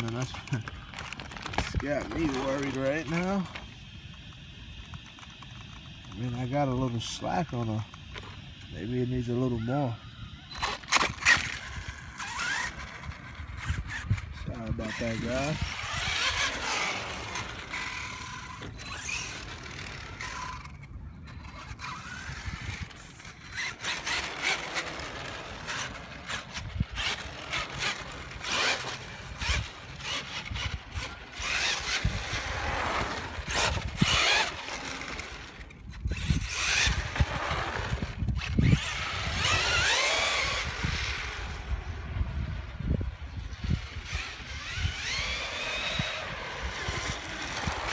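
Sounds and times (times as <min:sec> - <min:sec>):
toy truck motor whining: 0:00.0 - 0:47.9.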